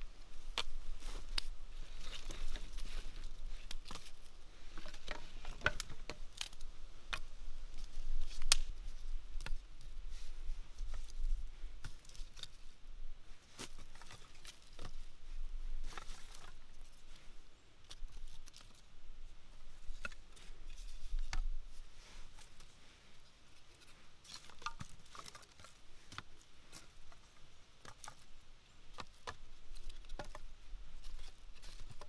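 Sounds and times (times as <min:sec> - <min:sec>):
dry sticks knocking together: 0:00.5 - 0:08.8, 0:23.8 - 0:28.3, 0:28.9 - 0:32.0.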